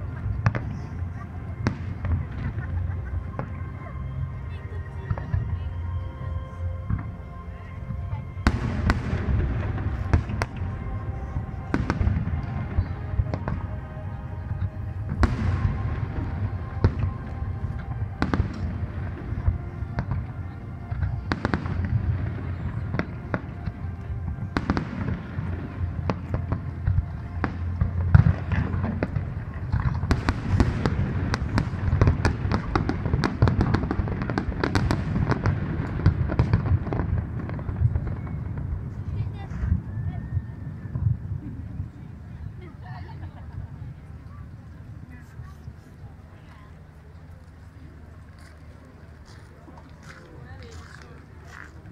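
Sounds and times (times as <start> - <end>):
low rumble: 0.0 - 42.4
fireworks bursting with bangs: 8.4 - 39.7
firework crackling: 8.4 - 39.8.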